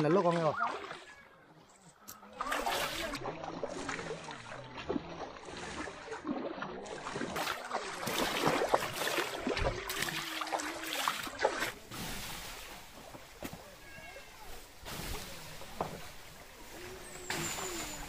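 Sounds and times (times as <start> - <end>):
water splashing around tyres: 2.3 - 13.8.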